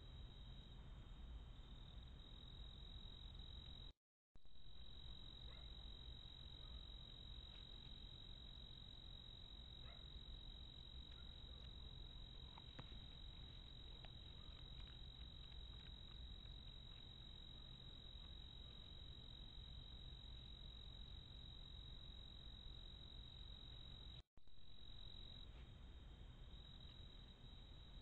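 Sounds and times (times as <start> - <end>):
cricket trill: 4.5 - 28.0
faint ticks: 10.9 - 18.8.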